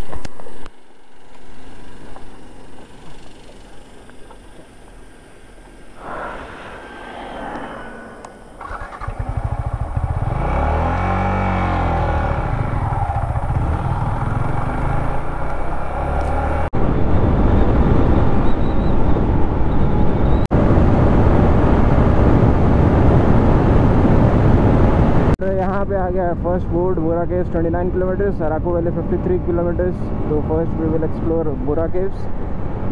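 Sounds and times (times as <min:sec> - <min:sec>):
motorcycle engine pulling away: 0:07.8 - 0:16.7.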